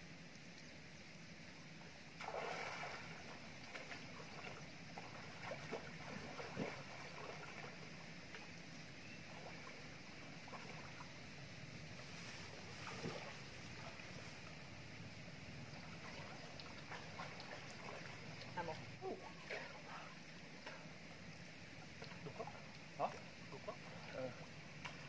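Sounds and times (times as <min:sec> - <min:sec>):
steady background hiss: 0:00.0 - 0:25.0
water sloshing and splashing: 0:02.2 - 0:14.7, 0:15.6 - 0:25.0
water drips: 0:15.6 - 0:25.0.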